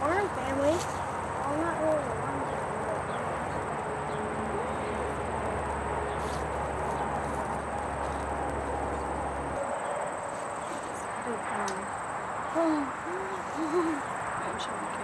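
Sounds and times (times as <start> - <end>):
low rumble: 0.0 - 9.7
crickets droning: 0.0 - 15.0.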